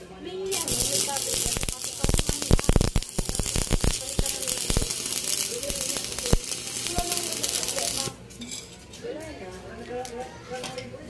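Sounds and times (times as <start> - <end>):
welding arc crackling: 0.5 - 8.2
sharp pops: 0.7 - 5.0.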